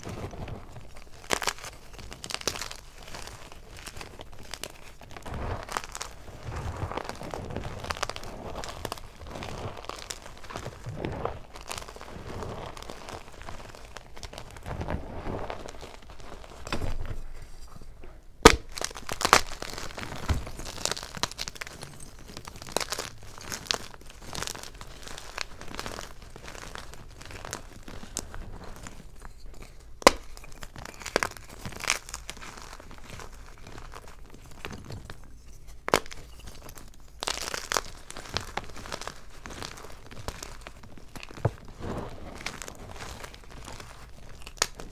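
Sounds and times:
chalk crunching and crackling: 0:00.0 - 0:44.9
chalk pieces snapping: 0:29.7 - 0:32.2.

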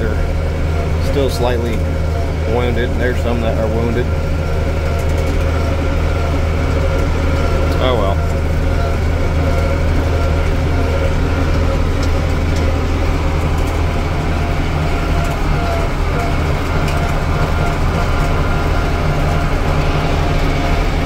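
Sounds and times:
tractor engine low drone: 0:00.0 - 0:21.0.

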